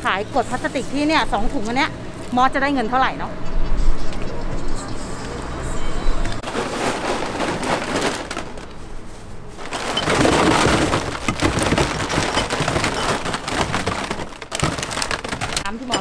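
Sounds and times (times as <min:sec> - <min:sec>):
plastic bottles crinkling and clattering: 0:06.4 - 0:16.0.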